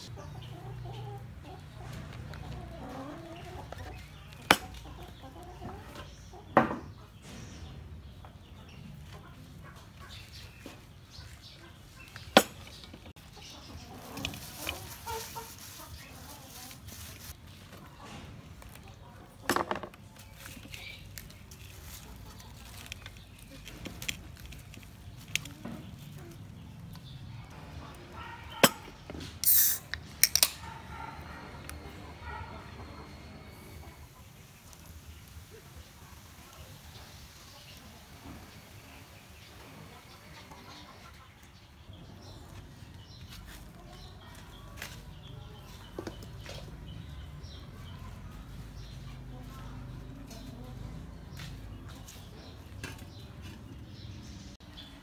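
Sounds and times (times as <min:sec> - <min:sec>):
chickens clucking: 0:00.0 - 0:55.0
can opening click and hiss: 0:29.4 - 0:30.5.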